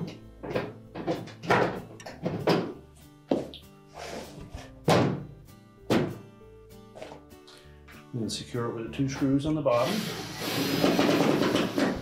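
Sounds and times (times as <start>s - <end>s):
soft background music: 0.0s - 12.0s
panel thunking against cabinet: 4.9s - 5.3s.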